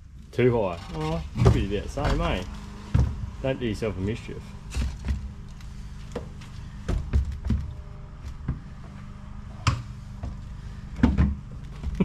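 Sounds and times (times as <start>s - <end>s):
boots thumping against windscreen: 4.6s - 12.0s.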